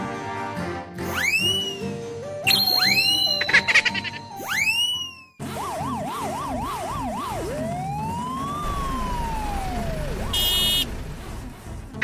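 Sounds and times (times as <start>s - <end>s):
police siren yelp: 4.5s - 10.8s
police siren wail: 4.6s - 10.8s.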